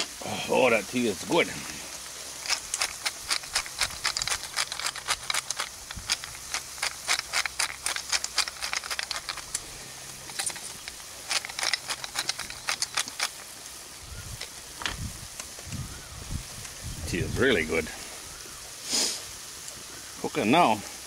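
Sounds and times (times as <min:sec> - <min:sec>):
spice mill grinding: 0:02.3 - 0:13.4
food sizzling in a pan: 0:18.3 - 0:20.2.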